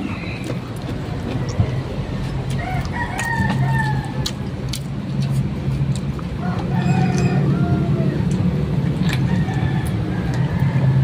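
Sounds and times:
steady low hum: 0.0 - 11.0
rooster crowing: 2.5 - 4.3, 6.4 - 8.3, 9.2 - 11.0.

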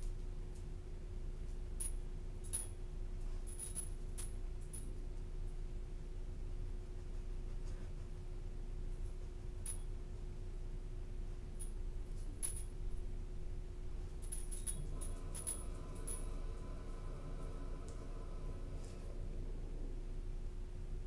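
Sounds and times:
steady electrical hum: 0.0 - 21.0
light metallic clinks and jingles: 1.8 - 5.0, 9.0 - 10.0, 11.6 - 12.9, 14.1 - 16.4.

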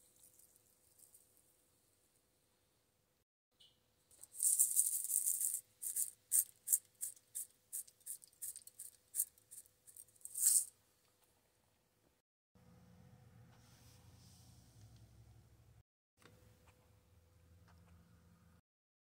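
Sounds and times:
shaker jar granules rattling: 0.0 - 1.4, 4.1 - 10.7.

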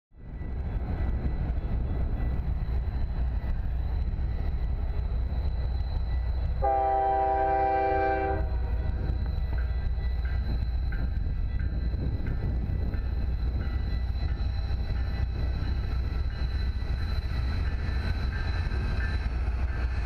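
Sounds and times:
locomotive air horn blast: 6.6 - 8.6.

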